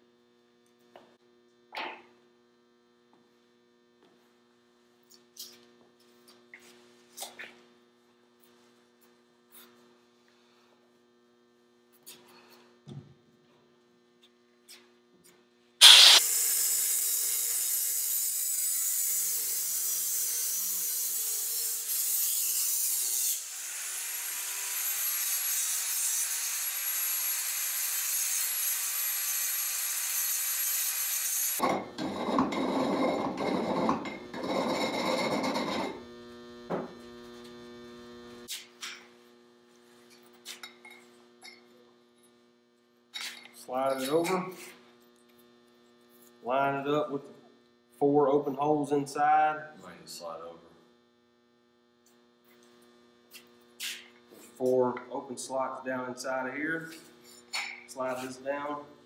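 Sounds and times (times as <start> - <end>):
faint mains hum: 0.0 - 15.8, 31.6 - 59.0
power grinder cutting metal: 15.8 - 31.6.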